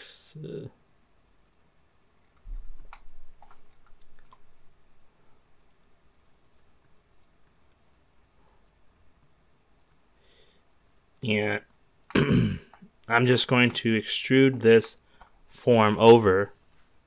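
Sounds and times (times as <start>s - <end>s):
computer mouse clicks: 1.3s - 1.6s, 2.3s - 4.5s, 5.6s - 7.8s, 8.6s - 10.0s.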